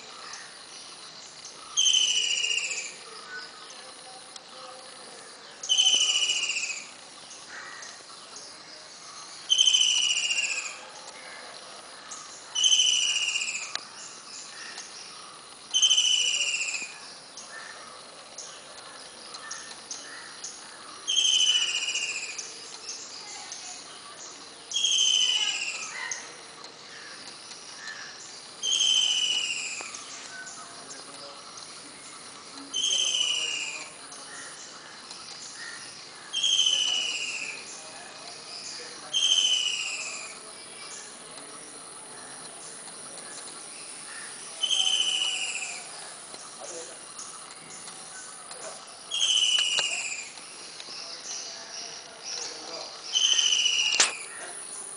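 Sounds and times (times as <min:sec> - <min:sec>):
faint bird chirps: 0:00.0 - 0:54.9
woodpecker rattling calls: 0:24.7 - 0:54.7.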